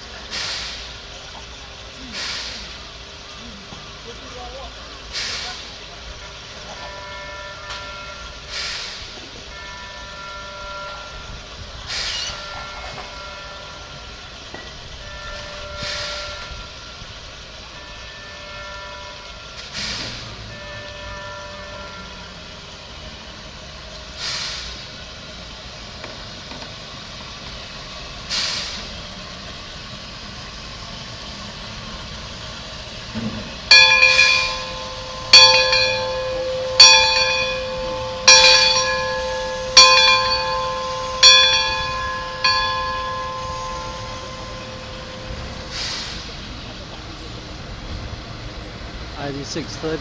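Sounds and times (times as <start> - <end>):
short hisses: 2.0 - 2.8, 8.5 - 9.1, 24.2 - 24.8, 45.7 - 46.4
bell ringing: 33.7 - 45.9.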